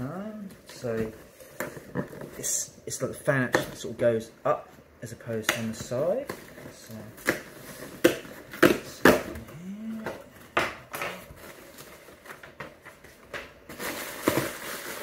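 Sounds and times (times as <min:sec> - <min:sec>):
rustling of box packing: 0:00.0 - 0:15.0
cardboard snapping and crackling: 0:05.4 - 0:15.0.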